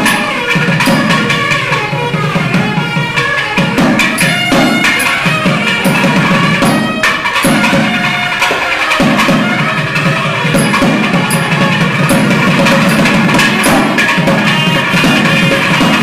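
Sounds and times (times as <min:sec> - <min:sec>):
barrel-drum strokes: 0:00.0 - 0:16.0
double-reed pipes playing melody: 0:00.0 - 0:16.0.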